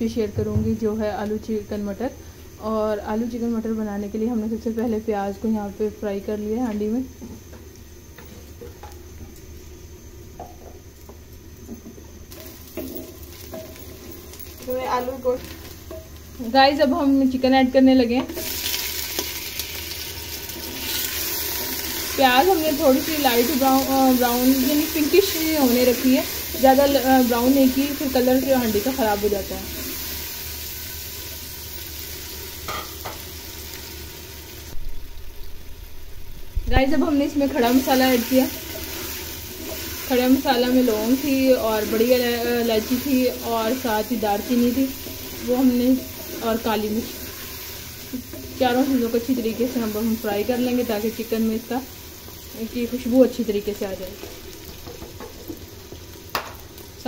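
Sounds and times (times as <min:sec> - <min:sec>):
onions sizzling in hot oil: 0:00.0 - 0:57.0
spatula stirring: 0:12.3 - 0:14.8, 0:37.6 - 0:51.0
spatula scraping: 0:41.6 - 0:48.9.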